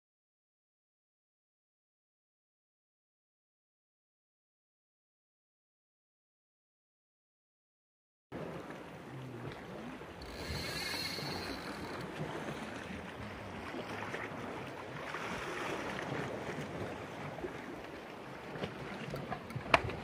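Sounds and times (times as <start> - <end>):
surf washing against rocks: 8.4 - 20.0
wind on microphone: 8.4 - 20.0.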